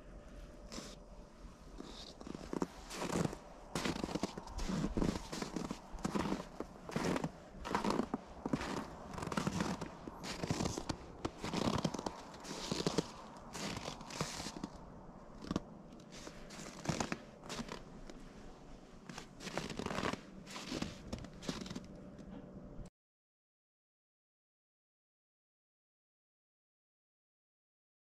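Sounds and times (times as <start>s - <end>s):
crunching and scraping in snow: 0.5s - 21.9s.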